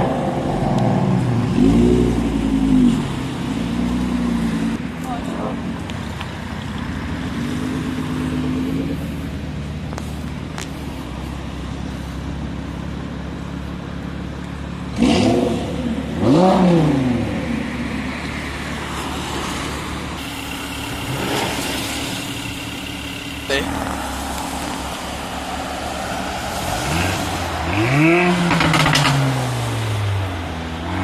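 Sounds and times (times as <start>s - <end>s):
car engine running and revving: 0.0s - 31.0s.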